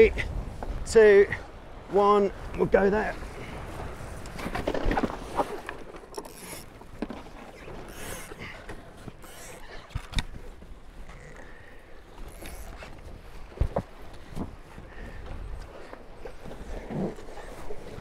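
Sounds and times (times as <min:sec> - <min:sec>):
wind and water wash: 0:00.0 - 0:18.0
rigging knocks and creaks: 0:04.2 - 0:11.6.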